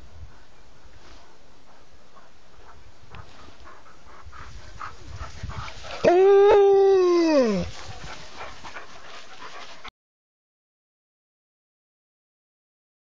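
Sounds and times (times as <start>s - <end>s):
dog howling: 6.0s - 7.8s.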